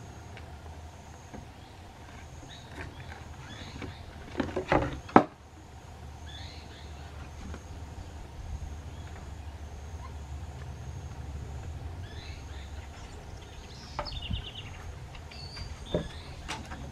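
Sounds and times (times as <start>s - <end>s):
steady low hum: 0.0s - 16.9s
faint bird chirps: 6.2s - 8.2s, 8.8s - 10.4s, 11.0s - 16.5s.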